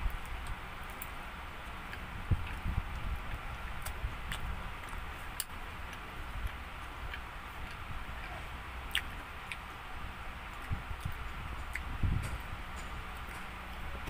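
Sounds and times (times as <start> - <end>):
eating noises: 0.1 - 14.0.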